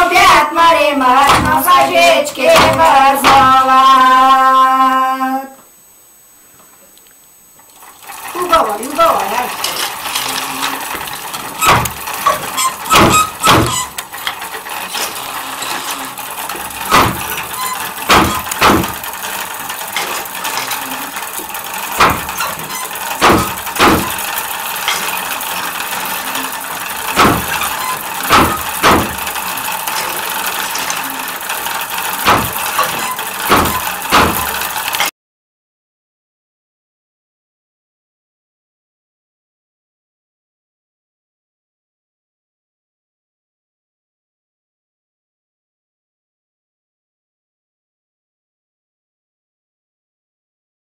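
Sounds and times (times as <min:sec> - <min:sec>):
wooden loom knocks: 0:01.2 - 0:03.6, 0:08.1 - 0:35.1.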